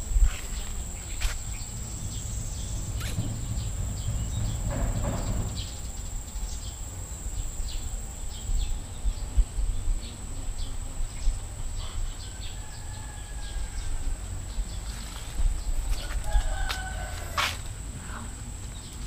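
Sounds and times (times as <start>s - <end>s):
microphone bumps: 0.0s - 6.0s
insect drone: 0.0s - 19.0s
low rumble on microphone: 0.0s - 19.0s
bird chirps: 0.6s - 6.8s.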